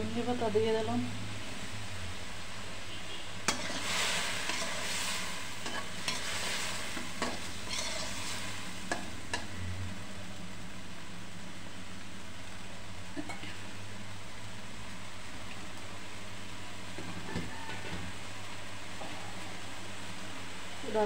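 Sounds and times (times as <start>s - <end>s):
eggplant sizzling in oil: 0.0s - 21.0s
spatula scraping a wok: 3.0s - 9.6s.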